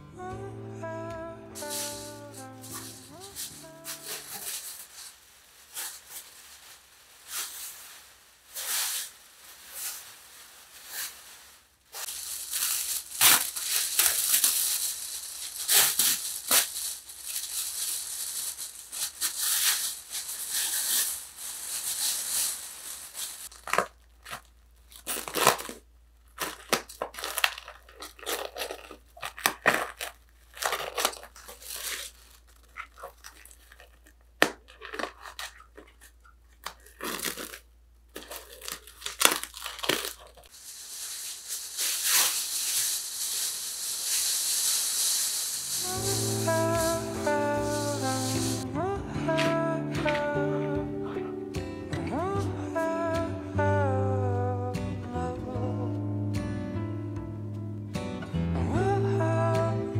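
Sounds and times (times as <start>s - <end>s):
plastic wrapping crinkling: 1.6s - 51.5s.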